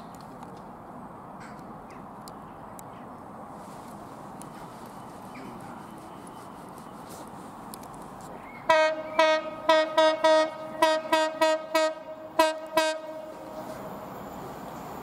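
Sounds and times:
train horn short toots: 0:08.7 - 0:13.3.

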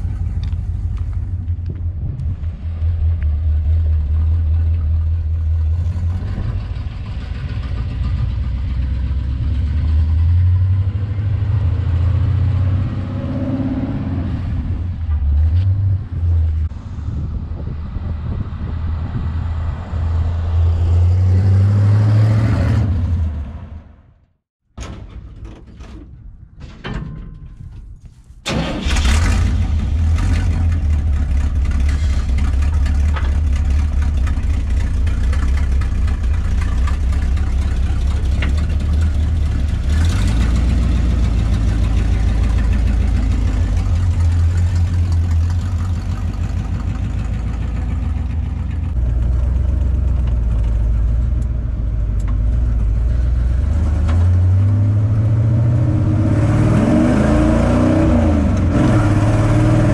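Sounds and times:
truck engine running loud: 0:00.0 - 0:23.3, 0:28.8 - 0:59.9
engine knocking: 0:03.9 - 0:09.2, 0:30.2 - 0:51.3.

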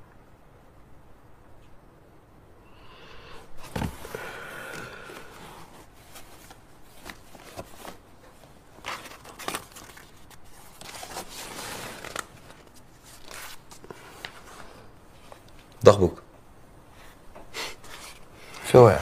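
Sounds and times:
hands rummaging in cardboard box: 0:03.6 - 0:14.6.

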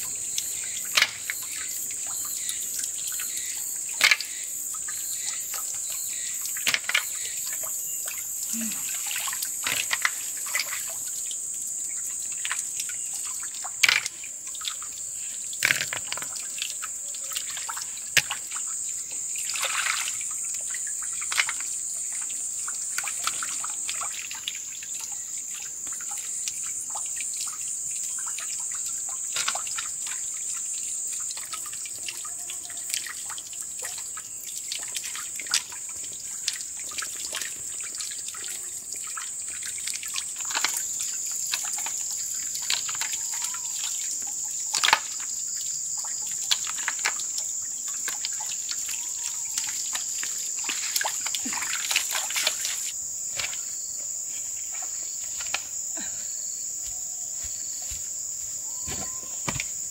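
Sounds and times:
water trickling and dripping: 0:00.0 - 0:59.9
wet mud squelching: 0:48.0 - 0:53.7.

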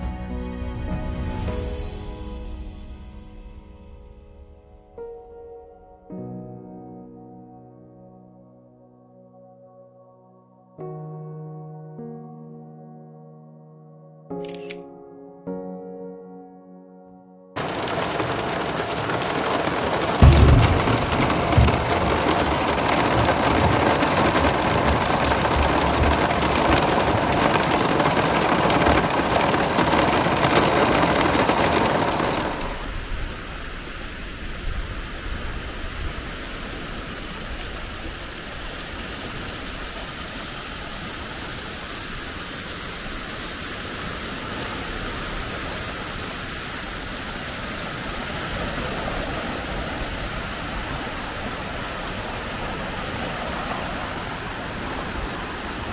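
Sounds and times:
heavy rain on a vehicle: 0:17.6 - 0:33.7, 0:34.6 - 0:55.9
steady outdoor hiss: 0:17.6 - 0:55.9.

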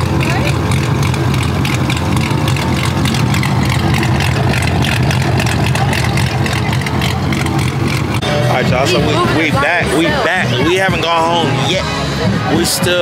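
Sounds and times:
pickup truck vee eight idling: 0:00.0 - 0:13.0.

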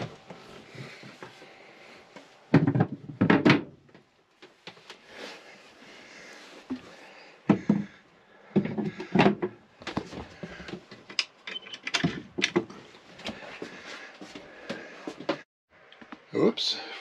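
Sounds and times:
wooden steps knocking and clunking: 0:02.5 - 0:04.1, 0:07.4 - 0:11.2.

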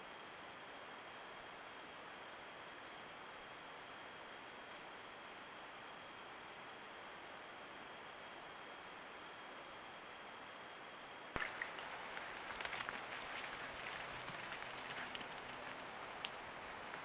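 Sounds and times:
faint hiss: 0:04.8 - 0:17.0
light ticks and crackles: 0:11.4 - 0:17.0.

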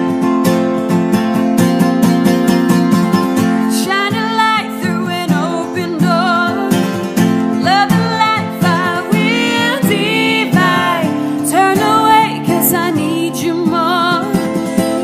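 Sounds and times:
acoustic guitar: 0:00.0 - 0:15.0
woman singing with vibrato: 0:03.7 - 0:15.0.

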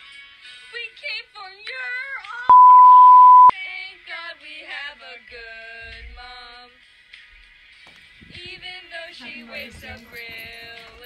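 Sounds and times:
censor bleep: 0:02.5 - 0:03.5
woman singing: 0:08.4 - 0:11.0.

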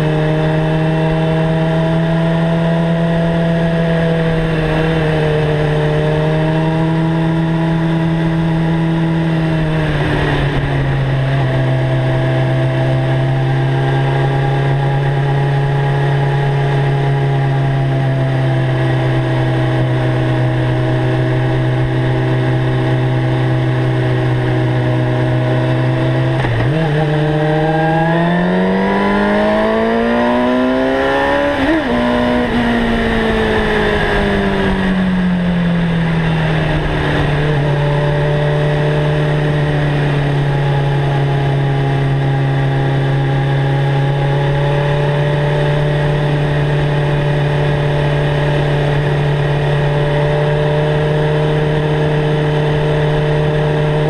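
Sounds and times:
motorcycle engine revving: 0:00.0 - 0:54.0
wind rush: 0:08.6 - 0:12.2, 0:31.2 - 0:41.1.

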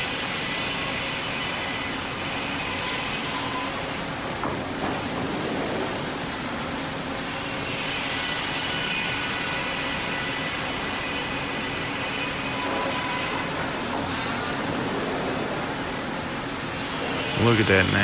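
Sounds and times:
sawmill machinery din: 0:16.7 - 0:18.0.

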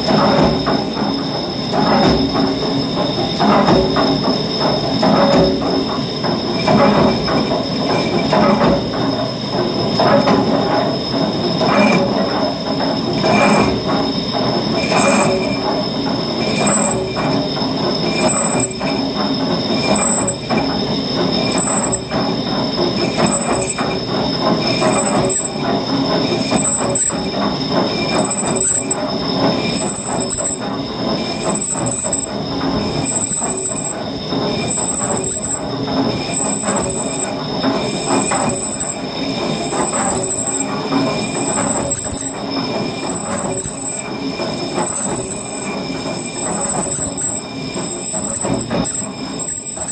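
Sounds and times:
running machinery: 0:00.0 - 0:49.9
metallic screech of lathe cutting: 0:13.2 - 0:13.8, 0:14.7 - 0:15.7, 0:16.4 - 0:22.2, 0:23.0 - 0:25.6, 0:26.3 - 0:49.9
short squeal: 0:13.2 - 0:13.8, 0:14.7 - 0:15.7, 0:16.4 - 0:19.1, 0:19.7 - 0:20.7, 0:21.4 - 0:22.2, 0:23.0 - 0:24.0, 0:24.6 - 0:25.6, 0:26.3 - 0:27.3, 0:28.0 - 0:49.9.

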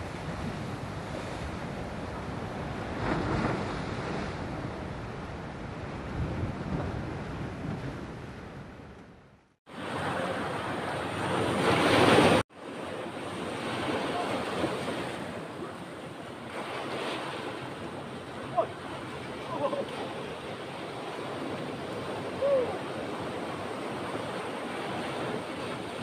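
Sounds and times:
wind buffeting microphone: 0:00.0 - 0:10.0
ocean surf breaking on rocks: 0:09.7 - 0:26.0.

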